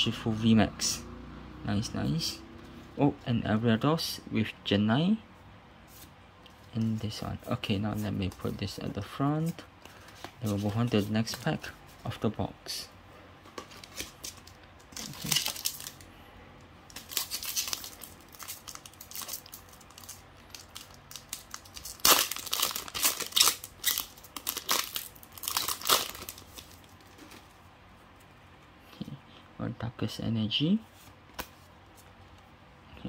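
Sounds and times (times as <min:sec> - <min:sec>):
foil wrapper crinkling and tearing: 0:13.8 - 0:16.1, 0:16.9 - 0:27.4.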